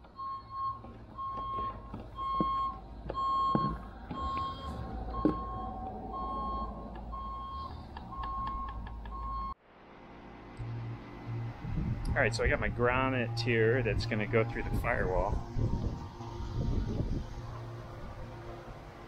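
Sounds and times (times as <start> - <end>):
electronic beeper tone: 10.6 - 17.1.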